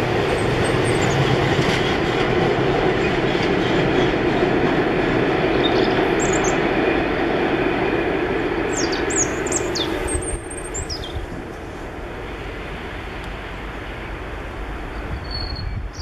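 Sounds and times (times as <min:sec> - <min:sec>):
freight train rolling: 0:00.0 - 0:16.0
small birds chirping: 0:05.6 - 0:06.6, 0:08.7 - 0:11.2.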